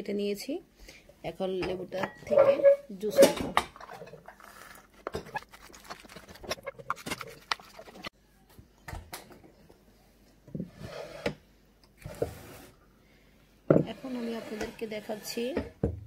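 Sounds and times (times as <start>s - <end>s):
lemon squeezing squelches: 4.2s - 8.1s.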